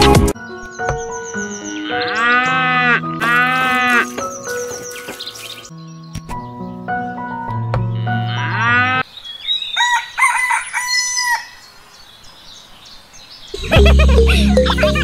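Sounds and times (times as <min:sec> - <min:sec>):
rooster crowing: 0:09.8 - 0:11.6.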